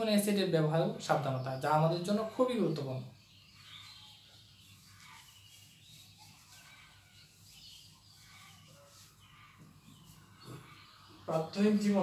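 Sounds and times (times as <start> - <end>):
duster rubbing on whiteboard: 3.6 - 10.4.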